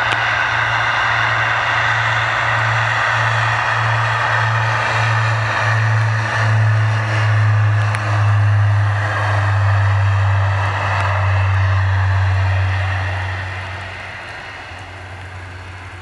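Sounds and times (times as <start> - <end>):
propeller plane engines at takeoff: 0.0 - 16.0.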